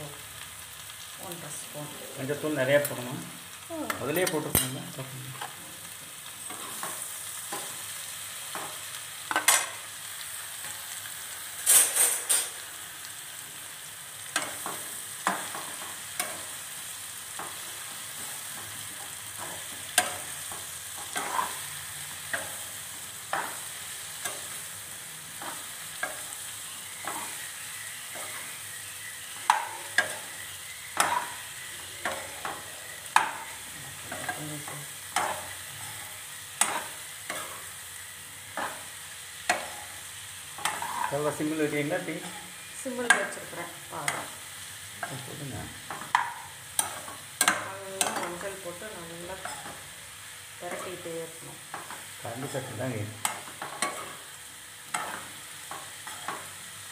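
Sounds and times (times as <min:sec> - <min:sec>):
mushrooms sizzling in hot oil: 0:00.0 - 0:56.9
metal ladle scraping a pan: 0:40.6 - 0:41.1.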